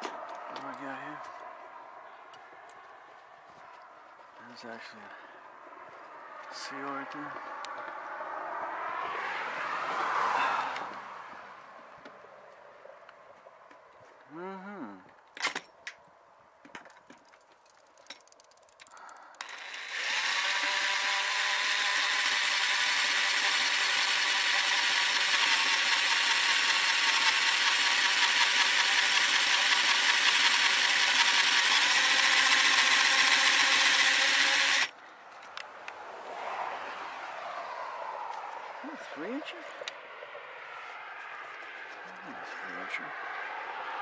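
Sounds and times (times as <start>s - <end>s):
cordless drill boring into steel: 19.4s - 34.9s.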